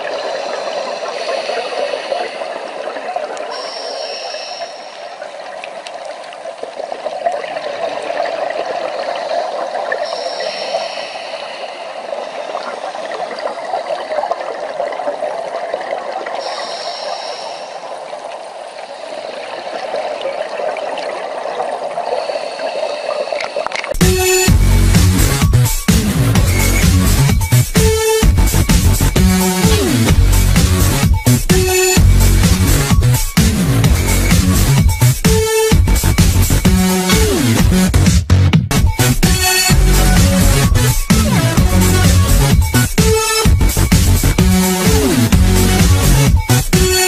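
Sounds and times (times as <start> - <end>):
underwater rushing and bubbling: 0.0 - 47.0
faint clicks: 2.8 - 7.6, 23.3 - 24.0.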